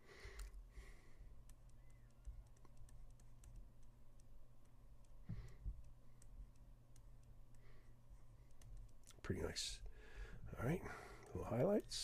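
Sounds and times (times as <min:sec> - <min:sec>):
soft breath: 0:00.0 - 0:01.4, 0:07.5 - 0:08.4, 0:09.8 - 0:11.4
low steady hum: 0:00.0 - 0:12.0.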